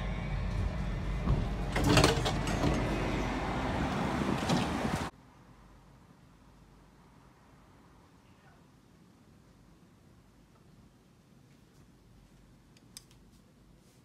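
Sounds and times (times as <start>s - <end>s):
doors opening rush: 0.0s - 5.1s
vehicle interior rumble: 0.0s - 5.1s.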